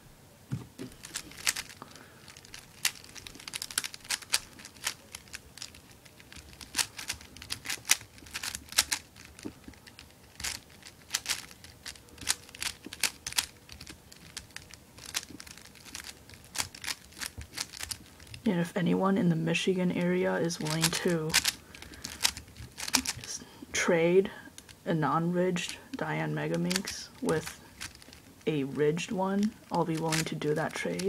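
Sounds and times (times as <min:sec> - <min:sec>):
plastic puzzle clicking: 0:00.9 - 0:18.4, 0:20.6 - 0:23.3, 0:26.5 - 0:28.3, 0:29.5 - 0:31.0.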